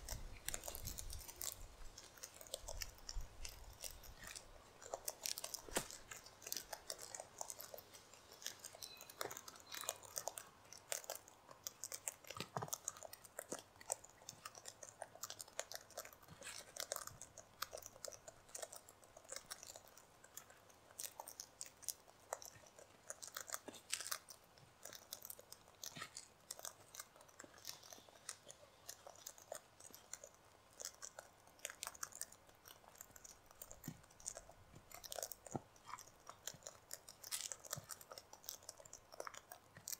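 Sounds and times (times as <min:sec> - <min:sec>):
cockatoos cracking seed: 0:00.0 - 0:11.2.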